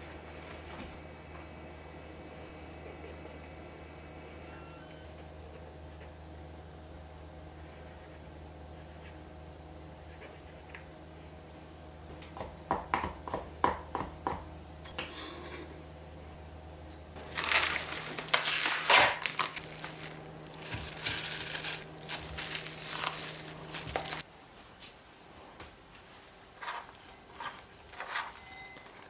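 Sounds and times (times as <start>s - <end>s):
plastic packaging crinkling: 17.2s - 24.2s.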